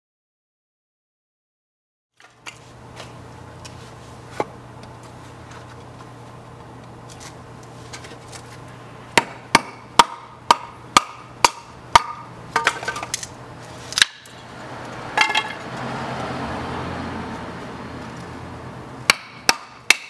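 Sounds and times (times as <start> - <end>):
hatchet chopping wood: 9.2 - 13.2, 13.9 - 14.4, 19.0 - 20.0.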